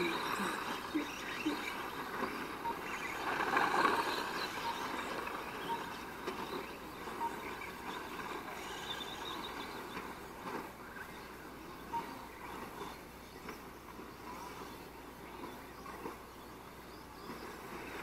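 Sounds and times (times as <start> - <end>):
model cars running: 0.0 - 18.0
short beeps: 2.6 - 6.0, 7.1 - 7.5, 11.9 - 12.2.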